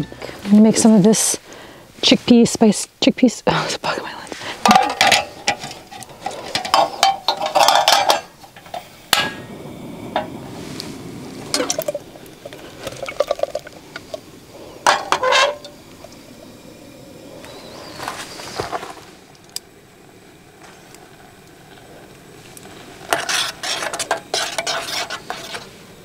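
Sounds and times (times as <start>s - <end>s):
metal cookware clinking and knocking: 4.7s - 9.4s, 14.9s - 15.7s.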